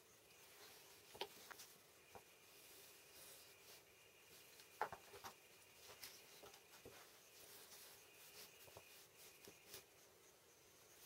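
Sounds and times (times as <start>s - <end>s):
paper rustling: 0.6s - 9.9s
faint taps of small components: 4.6s - 7.0s.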